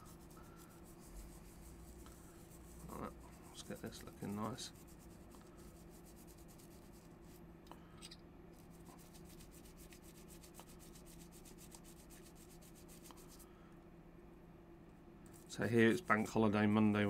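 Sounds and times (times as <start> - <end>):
rubbing watch back plate: 0.0 - 7.4, 8.6 - 13.4
steady low hum: 0.0 - 17.0.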